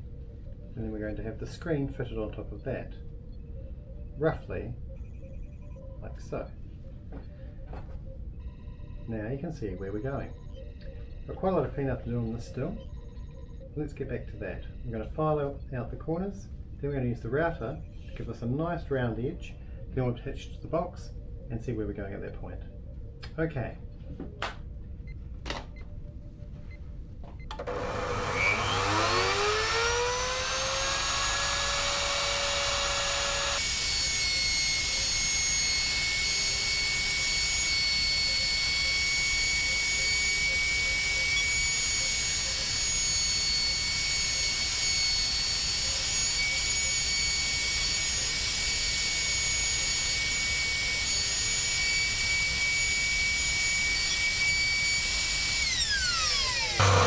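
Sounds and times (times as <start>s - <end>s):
router whining: 27.4s - 57.0s
router cutting wood: 27.6s - 57.0s.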